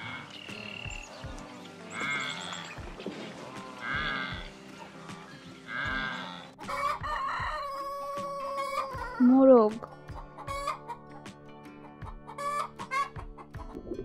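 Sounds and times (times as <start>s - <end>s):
animal bleating: 1.9s - 2.8s, 3.7s - 4.5s, 5.2s - 6.6s
rooster crowing: 5.9s - 9.2s.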